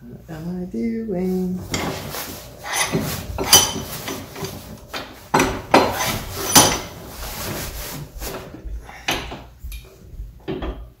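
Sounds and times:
vise handle clanking: 1.6s - 7.2s.

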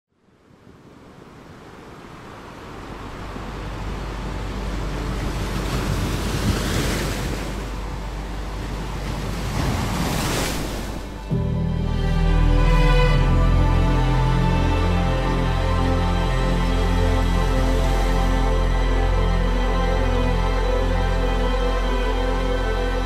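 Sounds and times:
ocean waves breaking: 0.6s - 23.0s
steady low rumble: 7.4s - 10.0s.

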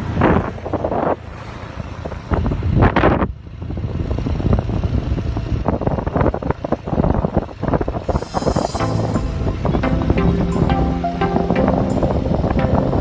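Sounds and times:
wind buffeting the microphone: 0.0s - 8.8s
vehicle rumble: 0.0s - 11.1s.

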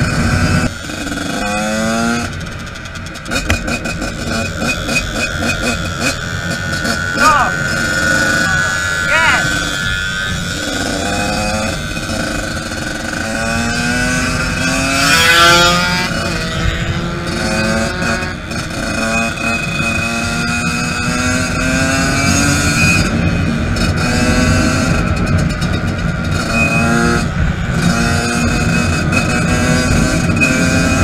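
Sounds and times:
dirt bike engine revving: 0.0s - 31.0s
wind rushing over microphone: 0.0s - 31.0s.

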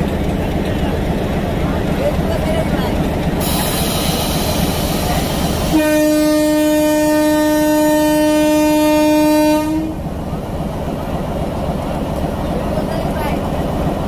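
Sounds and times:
locomotive rumble: 0.0s - 14.0s
locomotive air horn blast: 5.6s - 10.0s.

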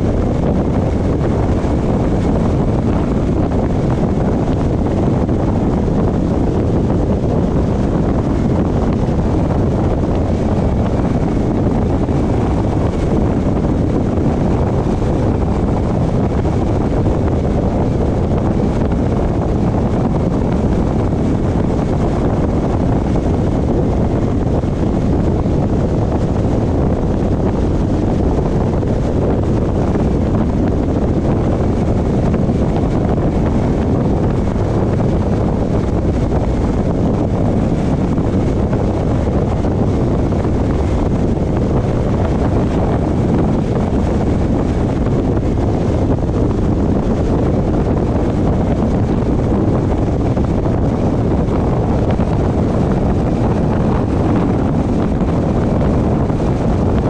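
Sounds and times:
wind and road rumble: 0.0s - 57.0s.

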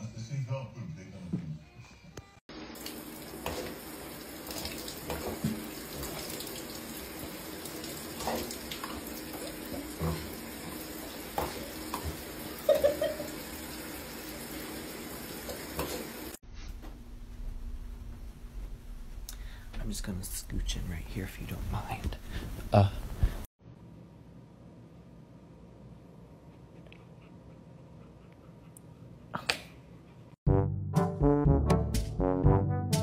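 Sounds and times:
water running from tap: 2.5s - 16.4s.

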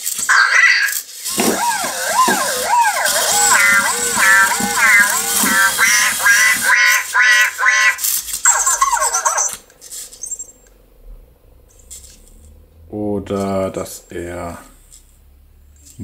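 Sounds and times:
toy robot imitating a siren: 0.3s - 9.6s.

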